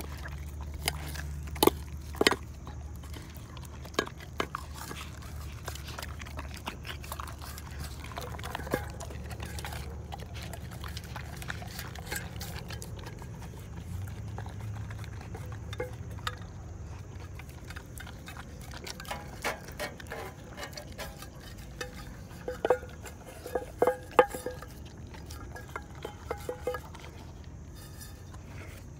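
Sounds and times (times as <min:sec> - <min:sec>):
puppy licking and chewing: 0:00.0 - 0:28.9
teeth knocking metal bowl: 0:19.0 - 0:27.1.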